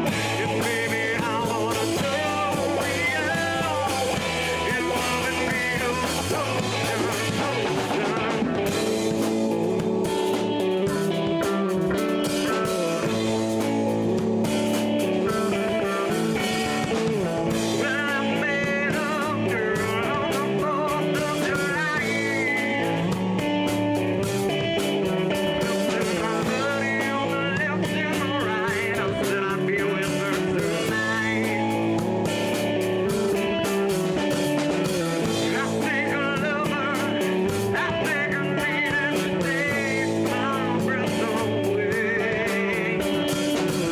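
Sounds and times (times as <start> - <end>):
bass guitar: 0.0 - 43.9
drum beat: 0.0 - 43.9
electric guitar: 0.0 - 43.9
person singing: 0.0 - 43.9.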